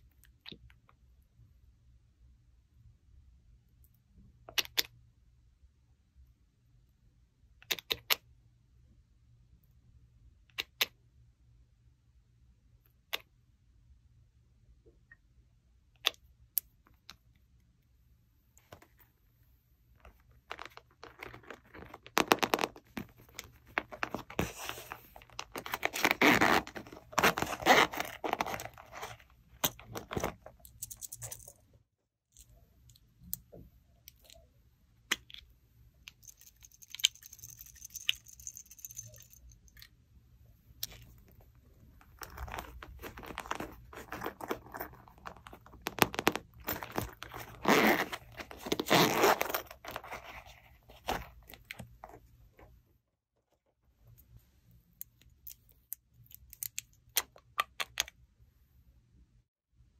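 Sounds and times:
coin purse rustling: 0:20.1 - 0:31.6, 0:36.1 - 0:39.7, 0:42.0 - 0:52.2
zipper pulled open: 0:23.8 - 0:29.2, 0:42.2 - 0:51.4.

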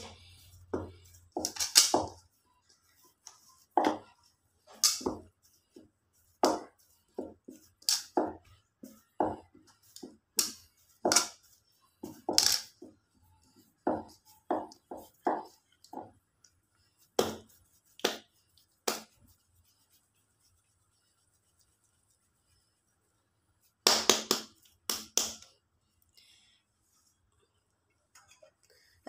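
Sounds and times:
hands kneading stiff dough: 0:00.0 - 0:29.0.

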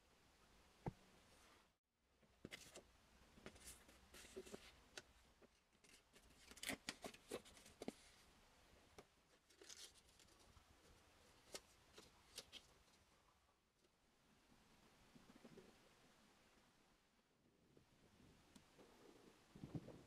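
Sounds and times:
crisp crackles: 0:09.4 - 0:10.6
paper and tape crinkling: 0:09.4 - 0:13.0.

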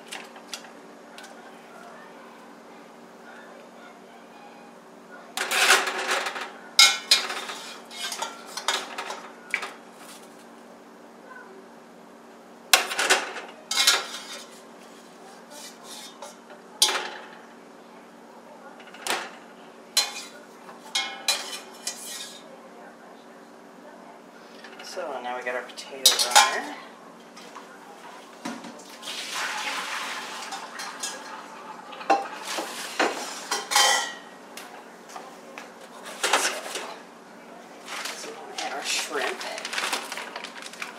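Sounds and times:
metal kitchenware clattering: 0:05.4 - 0:09.8, 0:12.8 - 0:14.6, 0:15.5 - 0:17.4, 0:20.0 - 0:22.4, 0:26.0 - 0:26.8, 0:30.4 - 0:34.3.

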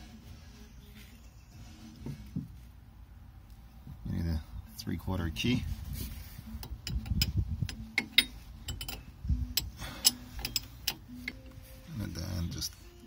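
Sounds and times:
metal wrench clicking on fitting: 0:06.6 - 0:11.4.

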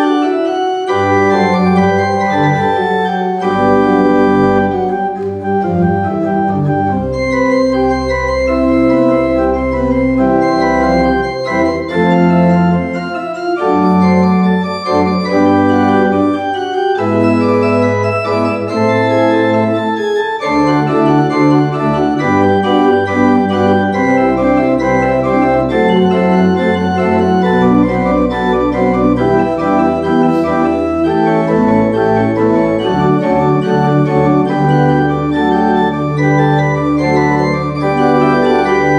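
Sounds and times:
pipe organ playing: 0:00.0 - 0:38.9.

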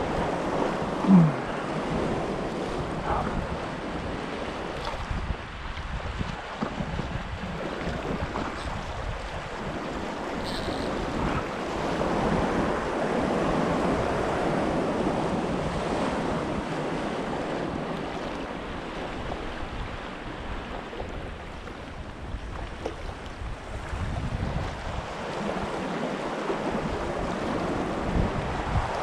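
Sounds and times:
waves washing among rocks: 0:00.0 - 0:20.9
wind on microphone: 0:00.0 - 0:29.0.

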